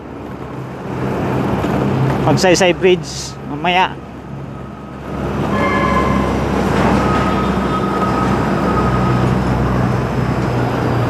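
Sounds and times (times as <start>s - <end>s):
low hum: 4.1s - 10.7s.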